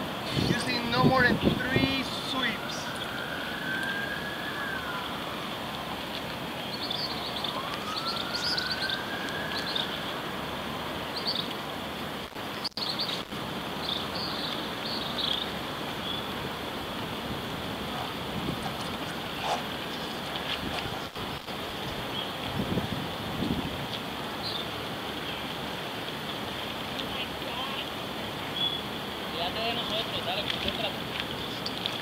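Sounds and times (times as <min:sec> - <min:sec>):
steady background hiss: 0:00.0 - 0:32.0
siren wailing: 0:00.5 - 0:06.1, 0:07.1 - 0:11.0.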